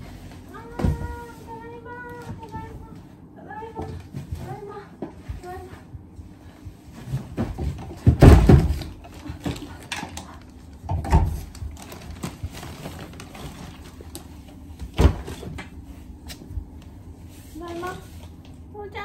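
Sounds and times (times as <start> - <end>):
bag rustling: 11.4 - 14.7.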